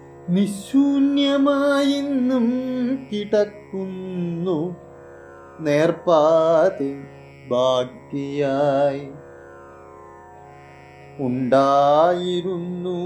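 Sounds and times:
man chanting poetry: 0.3 - 4.8, 5.6 - 9.2, 11.2 - 13.0.

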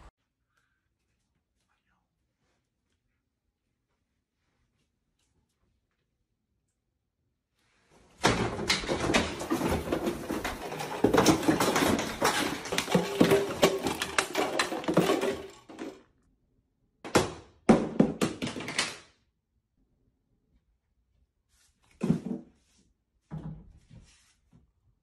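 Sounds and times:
kitchen items clattering down: 8.2 - 16.0.

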